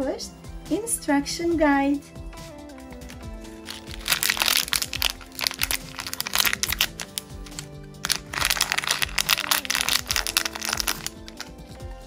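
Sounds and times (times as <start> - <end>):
background music: 0.0 - 12.0
plastic pieces clicking: 3.0 - 11.5
plastic bag crinkling: 3.0 - 11.6.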